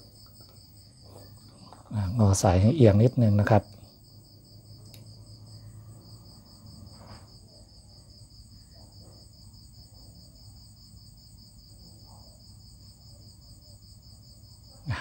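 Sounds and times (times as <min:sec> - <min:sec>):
faint low hum: 0:00.0 - 0:15.0
insect trilling: 0:14.8 - 0:15.0.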